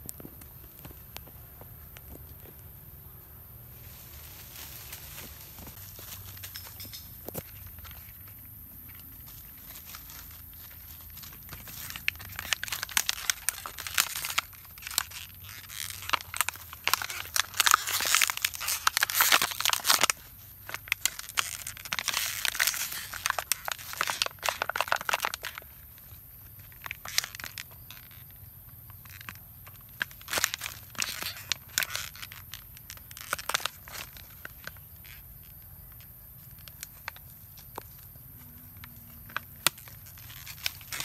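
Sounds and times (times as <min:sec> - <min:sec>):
plastic bottle crinkling: 0:09.1 - 0:38.2, 0:38.8 - 0:41.0.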